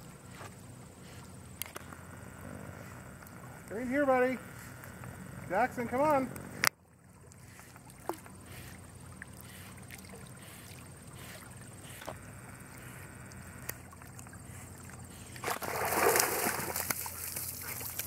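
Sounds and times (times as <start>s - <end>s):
water lapping: 0.0s - 18.0s
dog splashing out of water: 15.4s - 18.0s.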